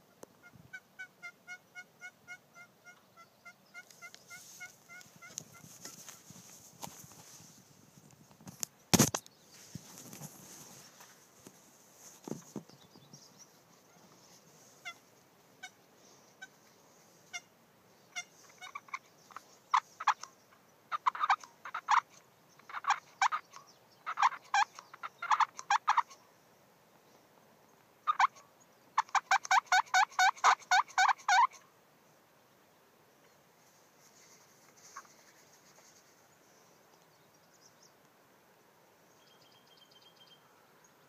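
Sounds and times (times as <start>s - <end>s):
wild turkeys calling: 0.1s - 6.2s, 18.1s - 26.2s, 28.0s - 31.7s.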